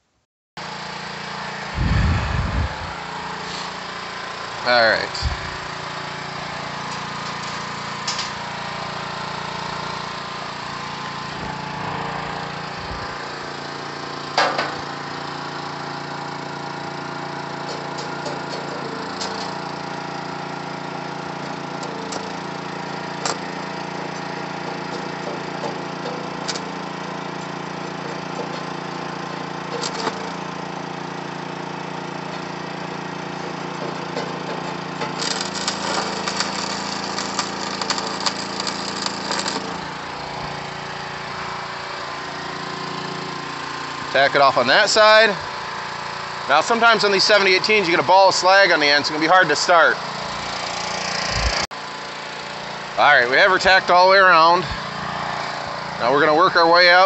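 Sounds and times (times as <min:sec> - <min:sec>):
steady machine hum: 0:01.0 - 0:57.0
welding arc cracks: 0:35.0 - 0:40.3.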